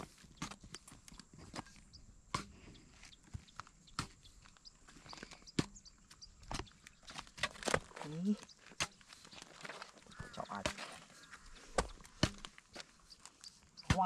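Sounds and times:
digging tool chipping dry mud: 0:03.2 - 0:08.0, 0:10.2 - 0:14.0.

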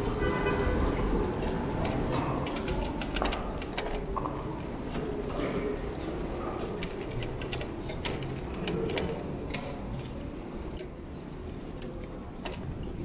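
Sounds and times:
bicycle ticking and clicking: 0:01.3 - 0:04.3, 0:06.6 - 0:13.0.

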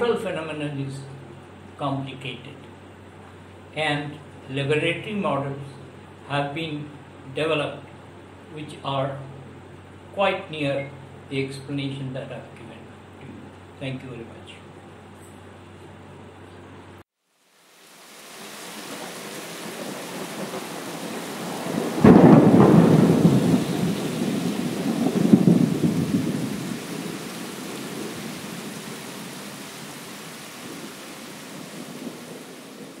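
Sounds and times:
steady rain: 0:17.3 - 0:33.0
thunderclap rumbling: 0:19.0 - 0:33.0.

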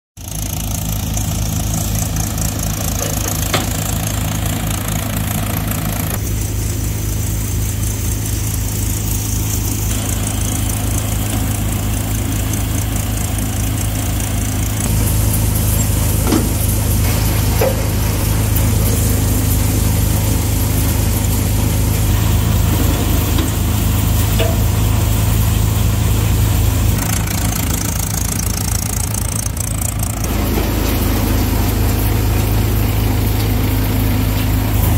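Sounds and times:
tractor diesel engine running: 0:00.2 - 0:34.9.

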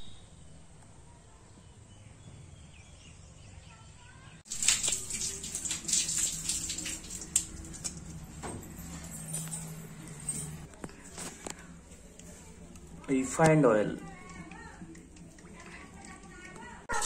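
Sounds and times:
faint bird chirps: 0:00.0 - 0:04.4.

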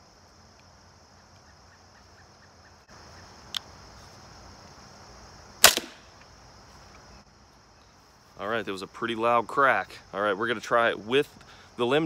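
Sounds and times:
crickets chirping: 0:00.0 - 0:12.0
crossbow shot crack: 0:05.6 - 0:06.2.

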